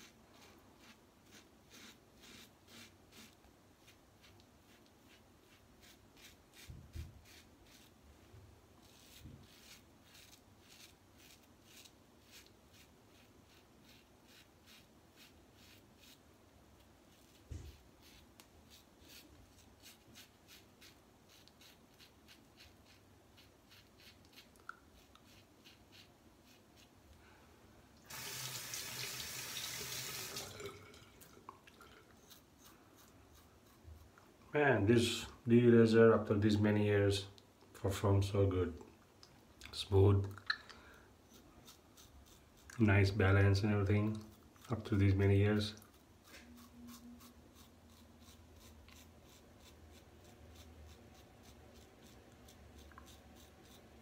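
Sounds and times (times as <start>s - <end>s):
razor scraping stubble: 0.0s - 8.0s, 8.8s - 16.2s, 17.1s - 26.9s, 32.2s - 34.2s, 41.3s - 54.0s
water running into sink: 28.1s - 31.2s.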